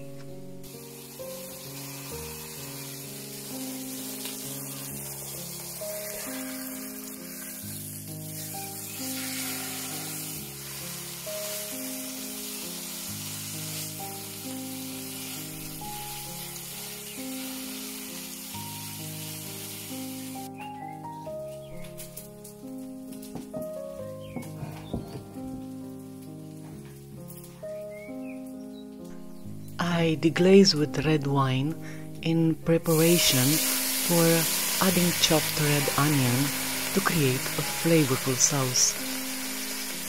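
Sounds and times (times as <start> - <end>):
slow background music: 0.0 - 40.0
meat sizzling in oil: 0.6 - 20.6, 32.9 - 40.0.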